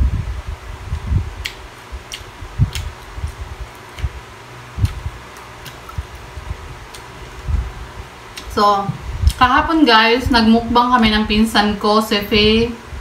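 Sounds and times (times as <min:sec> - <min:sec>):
faint steady hum: 0:00.0 - 0:13.0
chewing and mouth noises: 0:01.4 - 0:04.2, 0:04.8 - 0:07.4.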